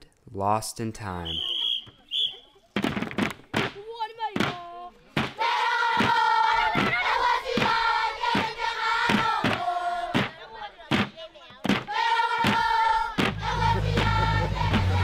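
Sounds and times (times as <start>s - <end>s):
steady beat: 4.4s - 15.0s
group singing in harmony: 5.4s - 10.7s, 11.8s - 15.0s.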